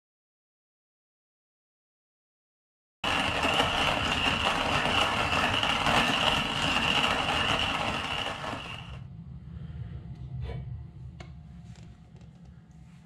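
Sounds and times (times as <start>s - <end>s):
manual coffee grinder grinding: 3.1s - 9.0s.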